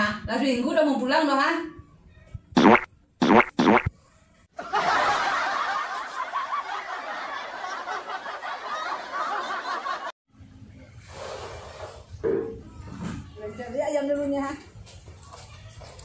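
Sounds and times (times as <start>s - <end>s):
laughter: 4.5s - 10.2s.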